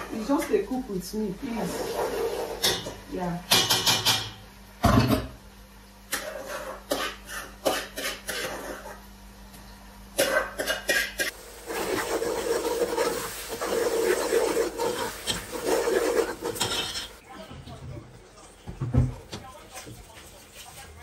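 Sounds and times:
spoon scraping metal pot: 10.7s - 17.2s
food sizzling in oil: 11.3s - 17.2s.

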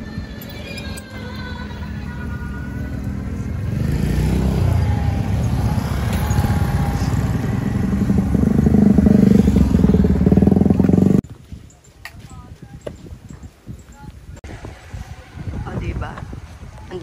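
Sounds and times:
vehicle engine running: 1.3s - 11.2s.

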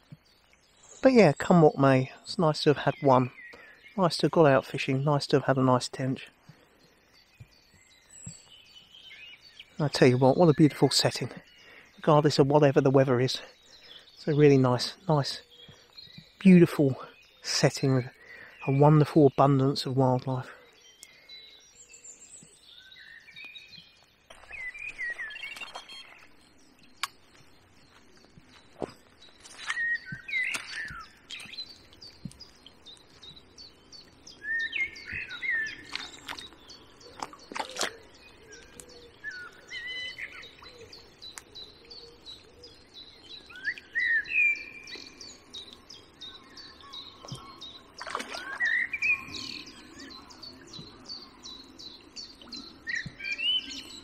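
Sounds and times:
songbirds singing: 0.0s - 54.0s
sharp clicks: 27.0s - 27.2s.

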